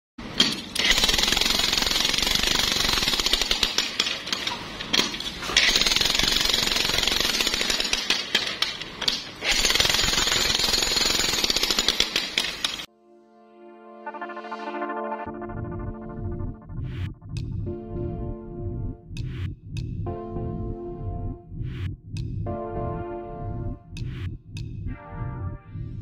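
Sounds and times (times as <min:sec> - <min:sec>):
jackhammer hammering concrete: 0:00.4 - 0:04.5, 0:05.6 - 0:12.9.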